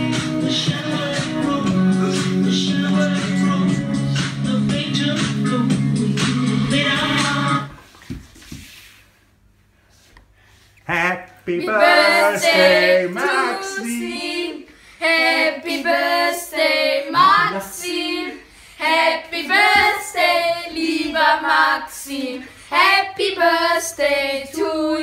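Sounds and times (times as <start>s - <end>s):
children singing a cappella: 6.7s - 7.8s, 11.6s - 25.0s.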